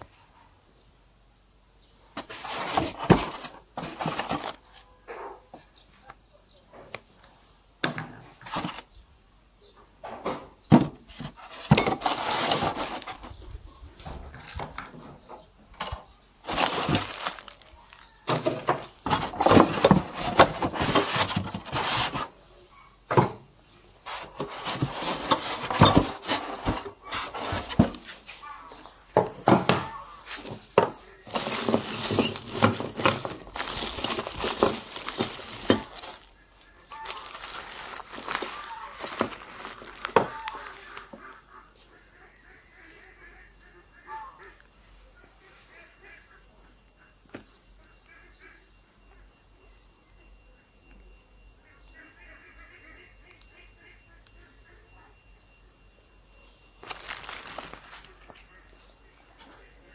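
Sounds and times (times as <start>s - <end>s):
foam packing rubbed and scraped: 2.2s - 4.6s, 19.1s - 22.4s, 24.0s - 28.5s, 30.2s - 36.3s
plastic bag rustling: 2.2s - 4.6s, 8.4s - 8.9s, 10.8s - 13.4s, 16.4s - 22.4s, 24.0s - 28.5s, 29.2s - 41.2s, 56.8s - 58.5s
metal parts clinking: 11.4s - 13.2s, 15.8s - 22.2s, 24.3s - 28.0s, 29.3s - 30.6s, 31.3s - 40.6s.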